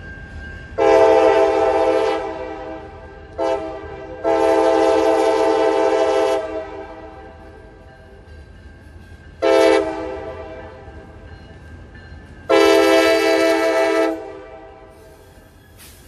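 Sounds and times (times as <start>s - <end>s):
locomotive air horn blasts: 0.8s - 7.4s, 9.4s - 10.9s, 12.5s - 15.1s.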